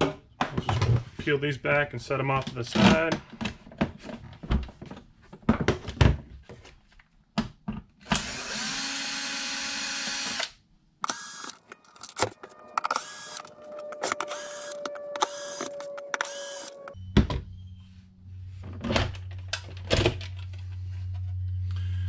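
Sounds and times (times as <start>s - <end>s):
cordless screwdriver running: 11.0s - 12.2s, 12.8s - 17.0s.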